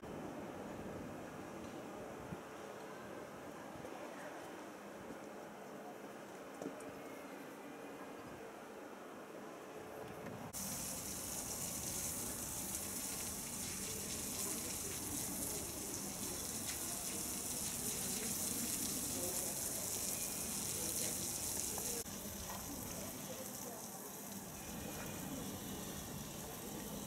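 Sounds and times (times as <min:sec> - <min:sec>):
high-pitched hiss: 0:10.6 - 0:27.0.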